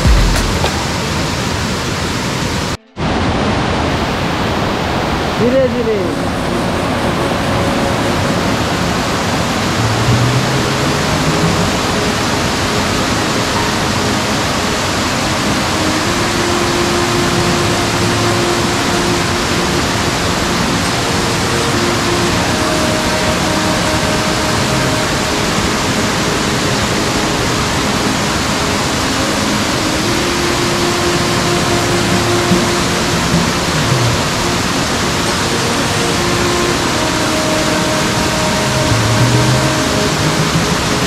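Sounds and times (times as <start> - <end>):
waterfall pouring and splashing: 0.0 - 41.0.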